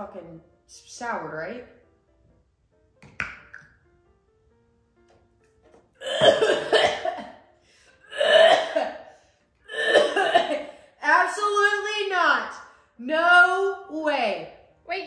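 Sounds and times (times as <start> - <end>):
woman coughing: 6.0 - 7.4, 8.1 - 9.1, 9.7 - 10.7.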